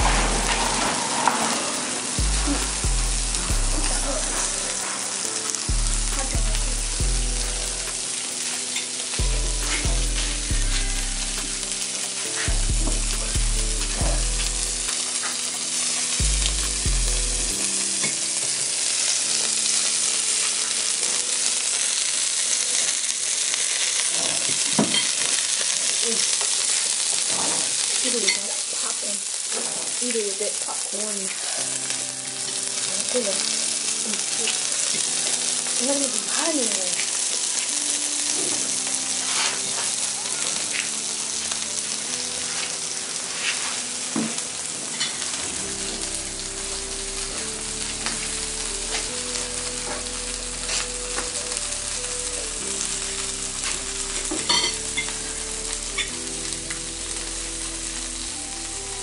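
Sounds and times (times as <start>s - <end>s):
bass line music: 0.0s - 18.0s, 45.4s - 59.0s
food sizzling in a pan: 0.0s - 59.0s.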